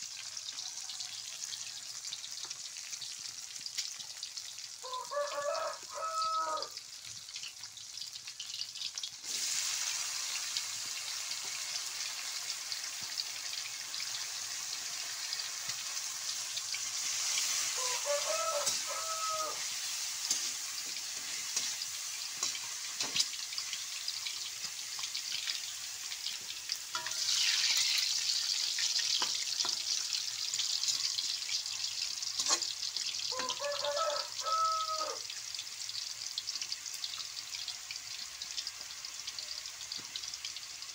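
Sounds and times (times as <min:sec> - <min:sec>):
bean sprouts sizzling in oil: 0:00.0 - 0:40.9
metal spatula scraping wok: 0:15.6 - 0:30.0, 0:32.4 - 0:32.7.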